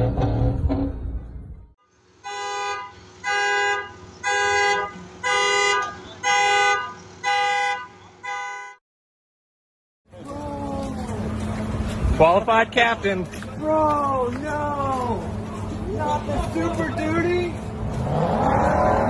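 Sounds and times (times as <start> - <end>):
vehicle horn honking: 2.2 - 8.8.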